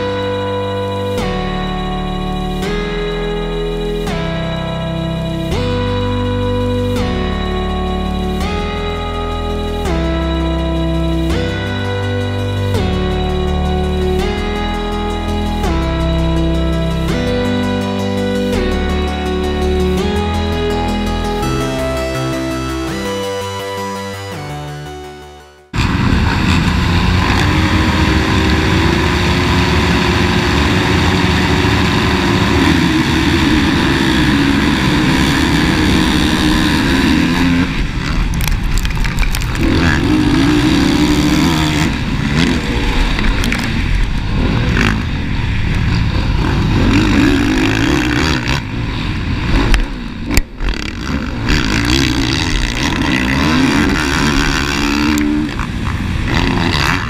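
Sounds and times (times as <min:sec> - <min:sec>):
motocross bike engine revving: 0:25.7 - 0:57.0.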